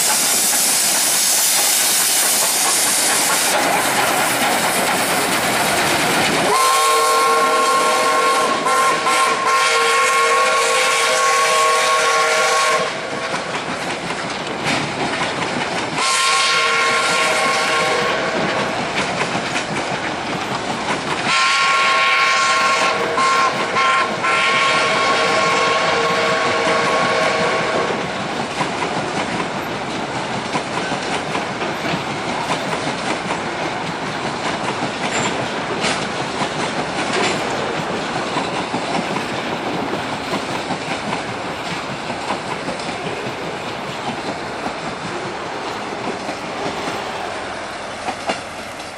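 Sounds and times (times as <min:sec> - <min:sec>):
train wheels clicking over rail joints: 0:00.0 - 0:48.9
train whistle: 0:06.4 - 0:13.4, 0:16.0 - 0:18.8, 0:21.3 - 0:28.0.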